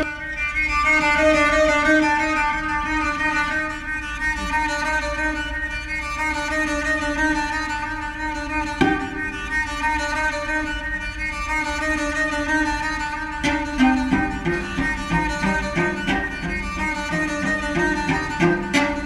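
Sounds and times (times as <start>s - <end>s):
bowed cello notes: 0.0s - 19.0s.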